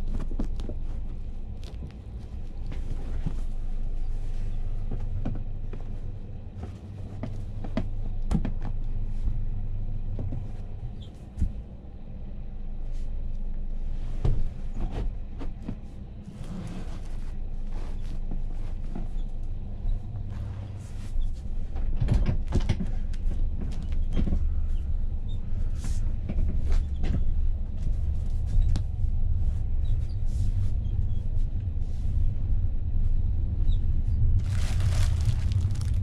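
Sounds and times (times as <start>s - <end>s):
train carriage hum and rumble: 0.0s - 36.0s.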